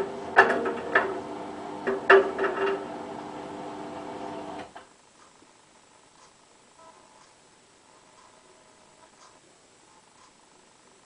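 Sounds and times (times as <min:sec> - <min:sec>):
washing machine drum spinning down: 0:00.0 - 0:04.8.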